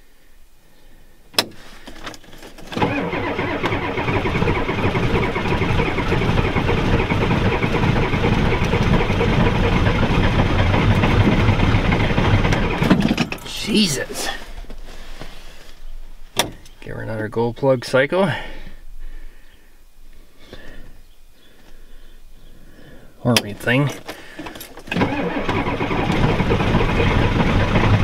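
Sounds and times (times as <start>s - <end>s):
diesel engine starter cranking: 1.4s - 14.5s, 23.3s - 28.0s.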